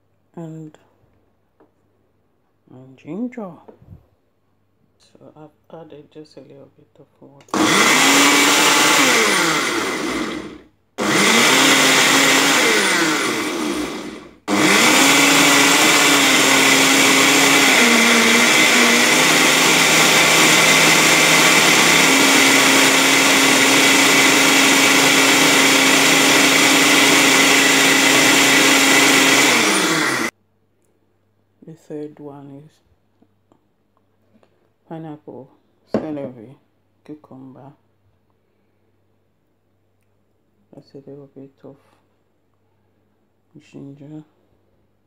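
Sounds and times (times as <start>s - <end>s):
blender motor: 7.5s - 30.3s.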